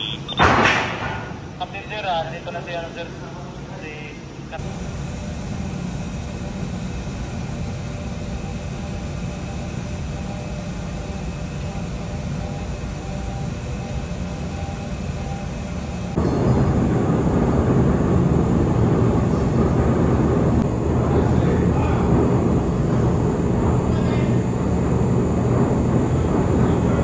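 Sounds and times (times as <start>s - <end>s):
faint steady hum: 0.0s - 27.0s
ship engine rumble: 4.3s - 27.0s.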